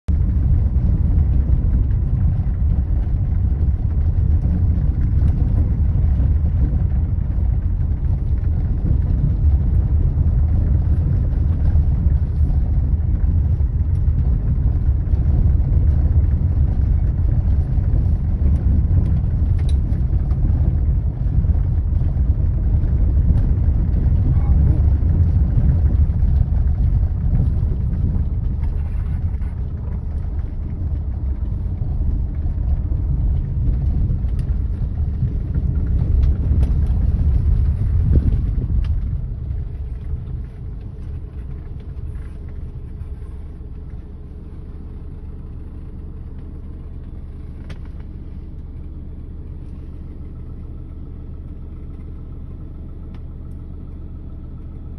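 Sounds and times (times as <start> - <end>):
vehicle rumbling over gravel: 0.1 - 54.9.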